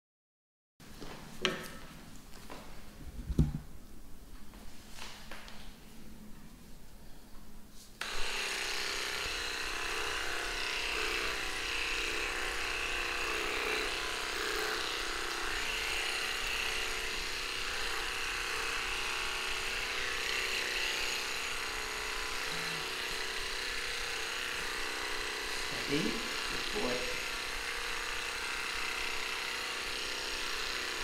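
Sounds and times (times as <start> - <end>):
electric clippers buzzing: 8.0 - 31.0.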